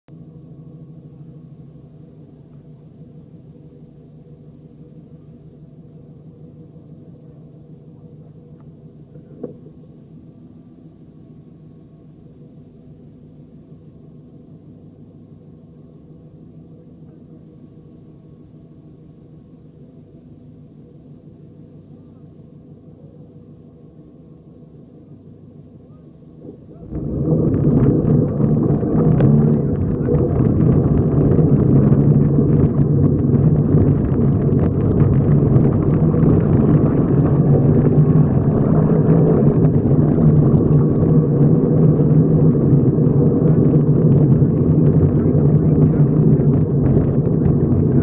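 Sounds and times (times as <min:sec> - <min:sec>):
car engine idling: 0:25.1 - 0:48.0.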